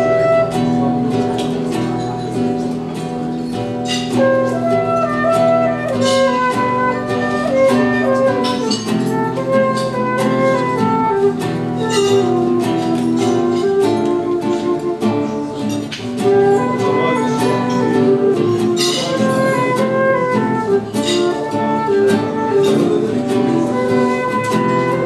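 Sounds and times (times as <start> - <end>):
acoustic guitar strumming chords: 0.0 - 25.0
flute playing melody: 0.0 - 25.0.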